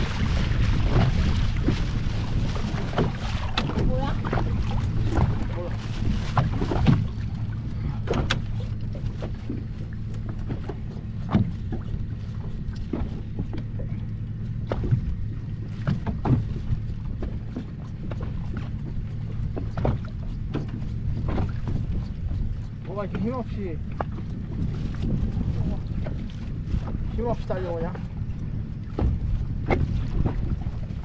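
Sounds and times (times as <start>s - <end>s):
boat engine idling: 0.0s - 31.0s
water slapping against hull: 0.0s - 31.0s.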